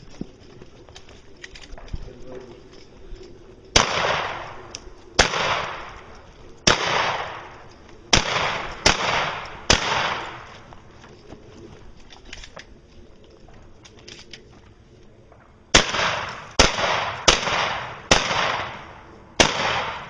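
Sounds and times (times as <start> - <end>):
echoing gunshots: 3.7 - 10.6, 15.7 - 20.0.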